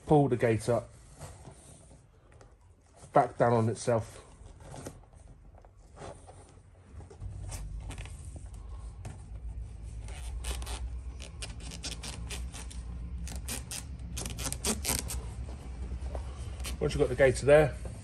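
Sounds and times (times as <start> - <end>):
low steady hum: 0.0 - 18.0
rubber gaiter rubbing and scraping: 3.9 - 18.0.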